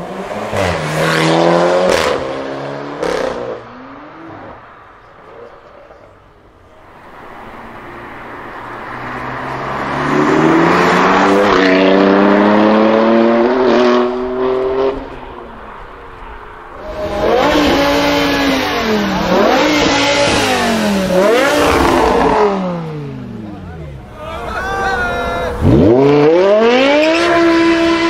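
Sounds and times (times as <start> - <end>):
car engine revving: 0.0 - 23.8, 25.5 - 28.0
car engine accelerating: 6.9 - 24.0, 25.5 - 28.0.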